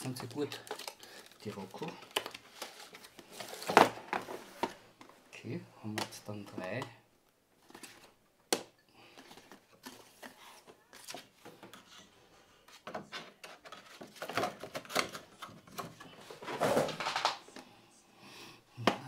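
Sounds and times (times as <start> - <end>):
plastic packaging crinkling: 0.0 - 4.0.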